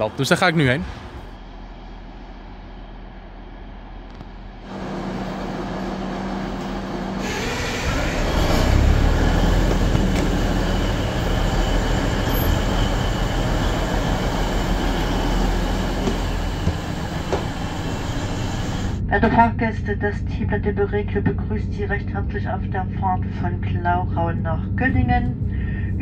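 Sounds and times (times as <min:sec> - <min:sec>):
train engine and wheel rumble: 0:00.0 - 0:26.0
high wheel squeal: 0:07.1 - 0:19.0.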